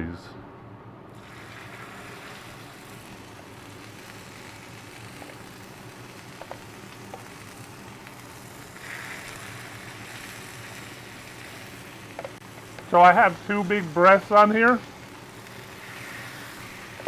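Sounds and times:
chicken sizzling on a griddle: 1.2s - 17.0s.

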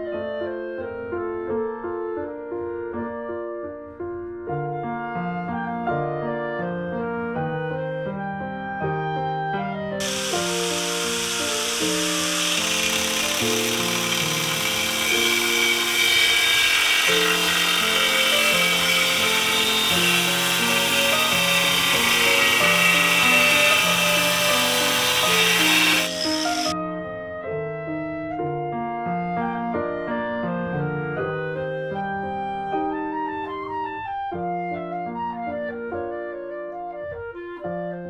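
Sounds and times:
background music: 6.0s - 29.0s
angle grinder cutting tile: 10.0s - 26.7s.

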